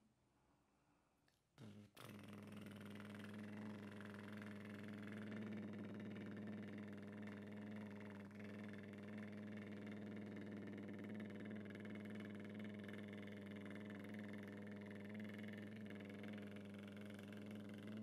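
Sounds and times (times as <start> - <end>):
man's lip trill: 1.6 - 5.8.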